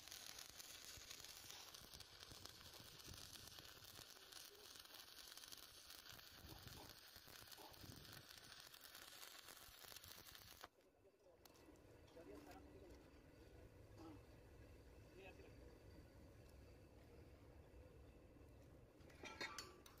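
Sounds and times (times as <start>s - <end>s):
welding arc crackling: 0.0s - 10.8s.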